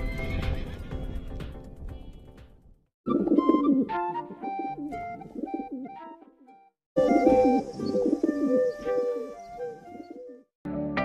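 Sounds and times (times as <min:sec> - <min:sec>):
pigeons cooing: 0:03.1 - 0:06.0, 0:07.0 - 0:10.5.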